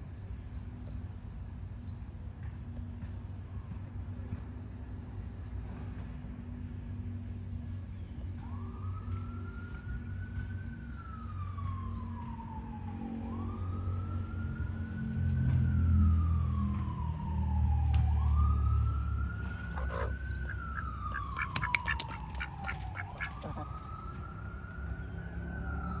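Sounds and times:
siren wailing: 0:08.3 - 0:26.0.

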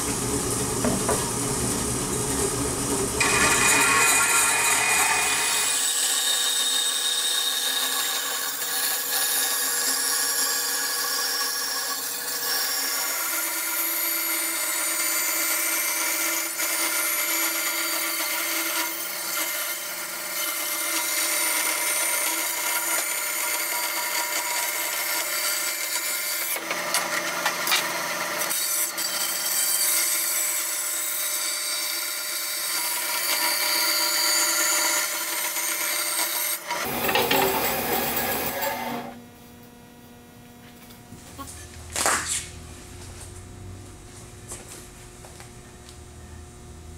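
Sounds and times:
bandsaw cutting wood: 0:03.2 - 0:39.2.

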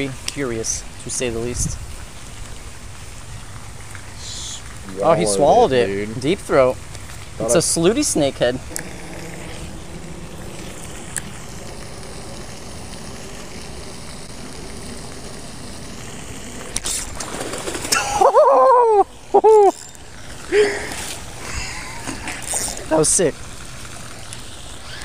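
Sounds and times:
outdoor background noise: 0:00.0 - 0:25.0
man whooping excitedly: 0:18.0 - 0:19.7.

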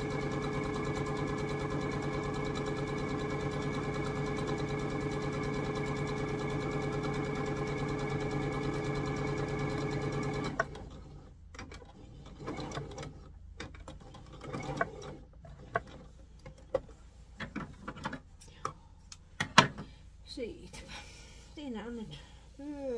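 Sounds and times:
sewing machine stitching: 0:00.0 - 0:16.1.

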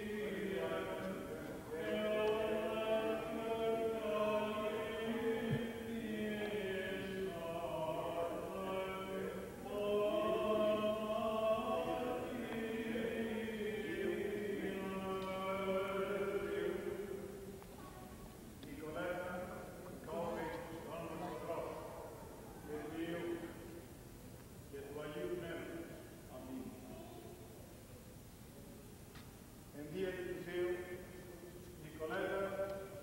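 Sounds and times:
voices singing chant: 0:00.0 - 0:17.6.

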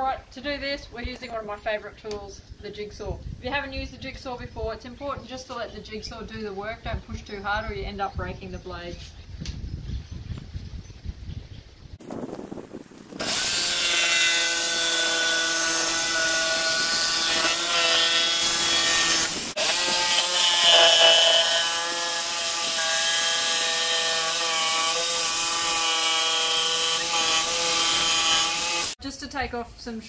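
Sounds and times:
jigsaw cutting plywood: 0:13.2 - 0:29.0.

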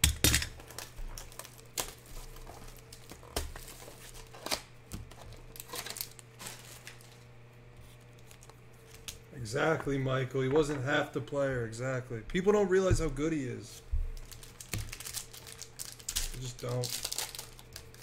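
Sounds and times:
packaging crinkling and tearing: 0:00.4 - 0:09.2, 0:14.2 - 0:18.0.

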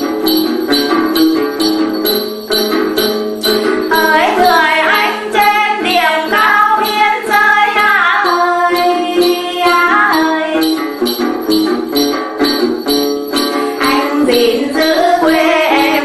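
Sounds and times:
backing with steady beat: 0:00.0 - 0:16.0
lute: 0:00.0 - 0:16.0
woman singing folk song: 0:03.9 - 0:10.8, 0:13.6 - 0:16.0.

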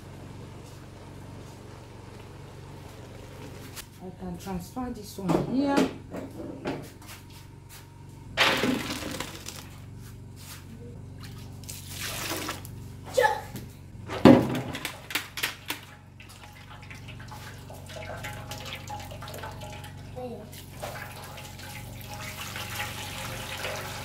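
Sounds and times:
water splashing through colander: 0:08.4 - 0:09.8, 0:11.2 - 0:12.7, 0:14.4 - 0:24.0.

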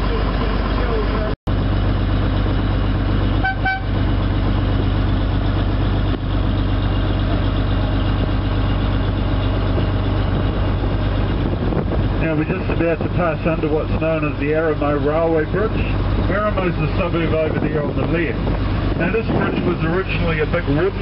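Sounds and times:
boat engine humming: 0:00.0 - 0:21.0
short horn toot: 0:03.4 - 0:04.0.

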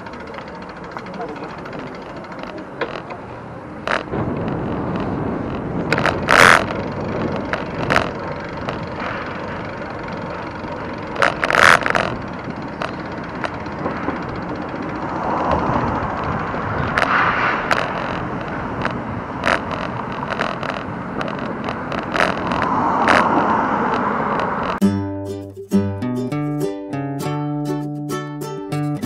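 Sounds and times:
sharp rattling clacks: 0:00.0 - 0:03.3
bicycle riding rumble: 0:00.0 - 0:24.8.

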